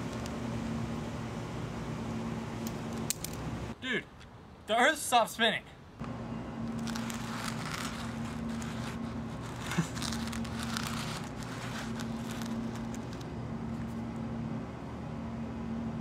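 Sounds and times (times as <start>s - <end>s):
steady low hum: 0.0s - 4.6s, 5.8s - 16.0s
paper rustling and crinkling: 6.7s - 13.3s.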